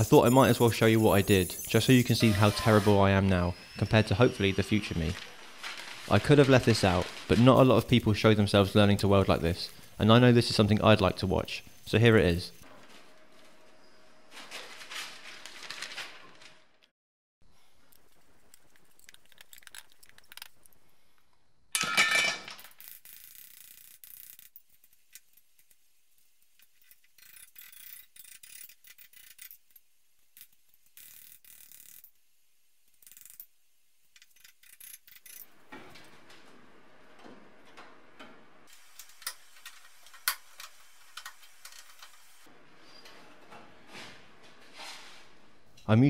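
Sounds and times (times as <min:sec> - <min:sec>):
rustling handling: 0:04.5 - 0:08.6, 0:14.3 - 0:16.7.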